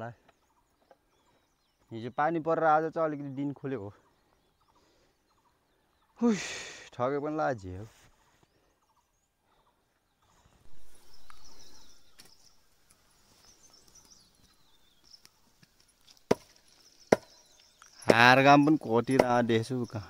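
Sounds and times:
birds chirping: 0:00.0 - 0:20.0
sharp knocks: 0:17.1 - 0:17.3, 0:19.1 - 0:19.5.

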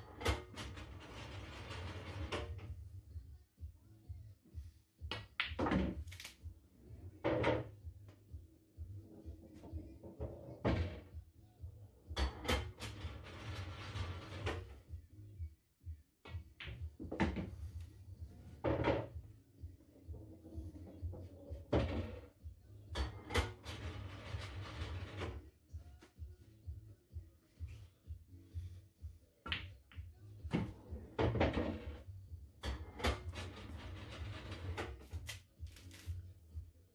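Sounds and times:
pool balls rattling: 0:00.1 - 0:02.7, 0:12.3 - 0:14.8, 0:23.0 - 0:25.4, 0:30.5 - 0:32.0, 0:32.7 - 0:35.3
pool balls knocking: 0:29.5 - 0:32.0.

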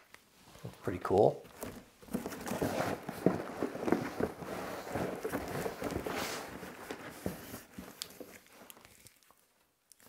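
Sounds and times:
bag and paper rustling: 0:01.5 - 0:08.7.

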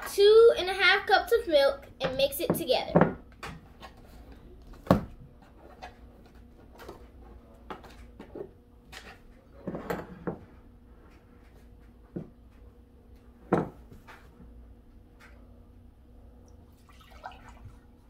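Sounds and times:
kitchen things knocking on tabletop: 0:13.5 - 0:13.8.

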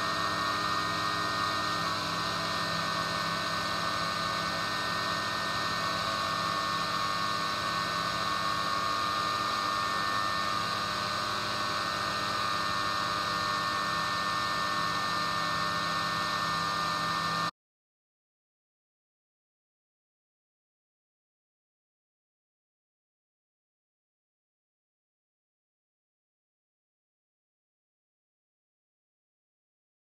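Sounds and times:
machine hum with whine: 0:00.0 - 0:17.5.

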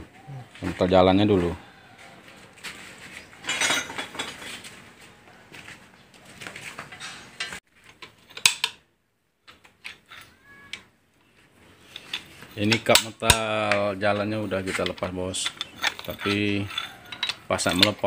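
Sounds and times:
metal tools clinking and scraping: 0:02.6 - 0:05.0, 0:06.6 - 0:08.7, 0:09.5 - 0:18.0.

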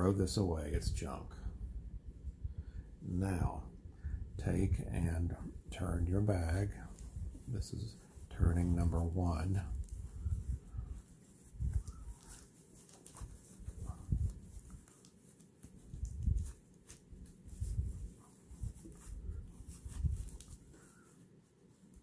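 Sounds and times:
fabric rustling: 0:05.7 - 0:22.0.

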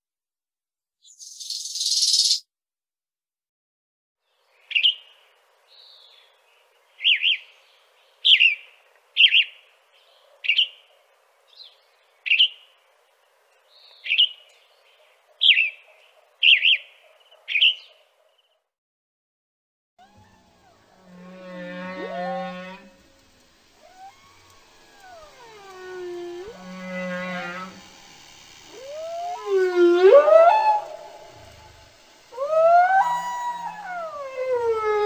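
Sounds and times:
bird chirping: 0:01.0 - 0:02.4, 0:04.5 - 0:12.8, 0:13.5 - 0:18.6.

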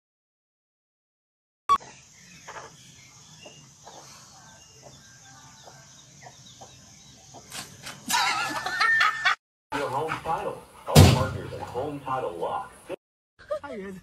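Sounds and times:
small birds chirping: 0:01.7 - 0:08.1
chickens clucking: 0:01.7 - 0:08.4.

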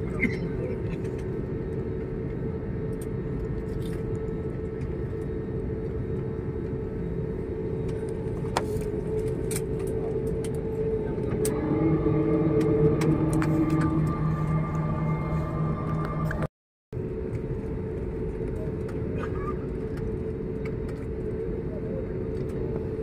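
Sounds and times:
deeper steady hum: 0:00.0 - 0:23.0
jet engine hum: 0:00.0 - 0:23.0
rumbling roar: 0:10.8 - 0:16.5.

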